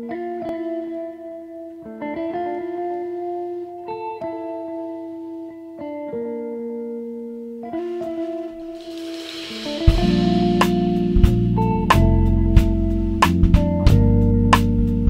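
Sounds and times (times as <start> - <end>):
slow instrumental music: 7.6 - 15.0.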